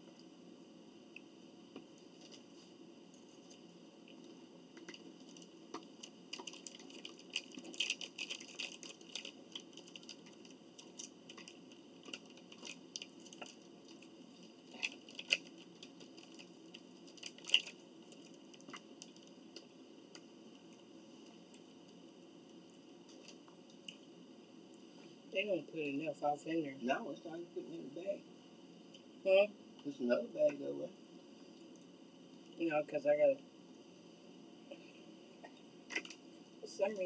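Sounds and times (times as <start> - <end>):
faint eating clicks and taps: 3.2 - 20.3.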